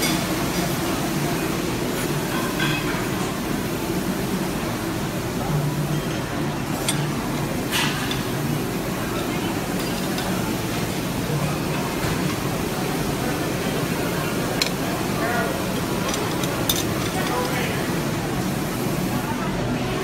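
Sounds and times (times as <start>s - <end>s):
many people talking: 0.6s - 20.0s
dishes clinking: 2.3s - 3.2s, 9.2s - 12.6s, 14.5s - 18.0s.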